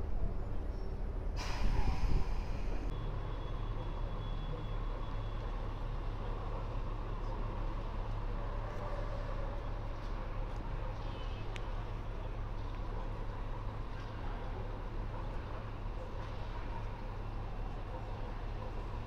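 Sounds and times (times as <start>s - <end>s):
traffic rumble: 0.0s - 19.0s
short loud hiss: 1.4s - 2.8s.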